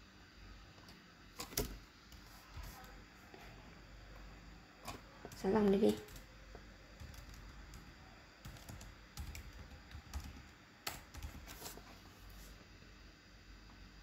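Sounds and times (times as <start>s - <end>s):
faint typing on keyboard: 4.8s - 11.9s.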